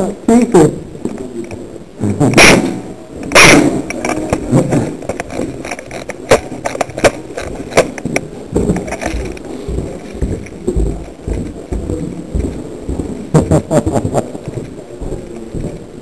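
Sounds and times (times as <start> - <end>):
clicks and knocks: 2.4 - 12.6.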